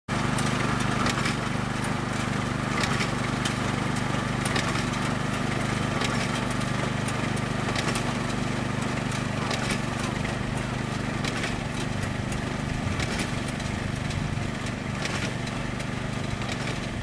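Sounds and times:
reaper-binder engine drone: 0:10.1 - 0:17.0.

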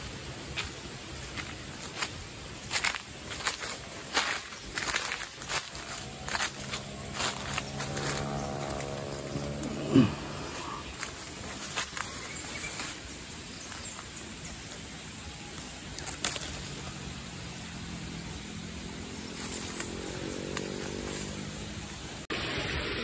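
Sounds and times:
outdoor noise: 0:00.0 - 0:23.0
distant engine running: 0:04.6 - 0:11.6, 0:16.5 - 0:22.2.

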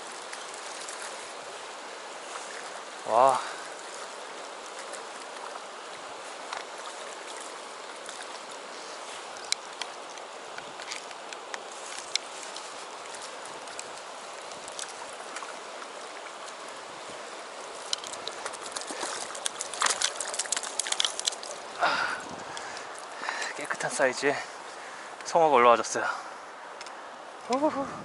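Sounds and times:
river flowing over stones: 0:00.0 - 0:28.0
fish splashing at surface: 0:17.8 - 0:23.1.

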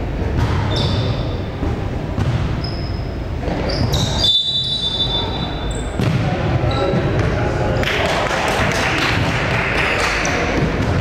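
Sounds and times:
echoing din of a hall: 0:00.0 - 0:11.0
sneakers squeaking: 0:00.3 - 0:07.6
basketball bouncing: 0:02.2 - 0:02.6, 0:06.0 - 0:06.3, 0:10.5 - 0:11.0.

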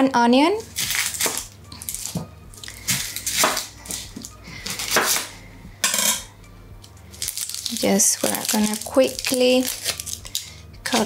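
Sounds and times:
knife cutting onion on board: 0:02.9 - 0:05.3.

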